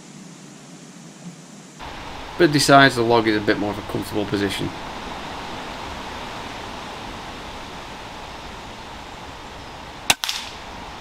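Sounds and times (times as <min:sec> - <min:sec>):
steady outdoor hiss: 0:00.0 - 0:11.0
pellet strike crack: 0:10.1 - 0:10.6
air rifle shot crack: 0:10.1 - 0:10.7.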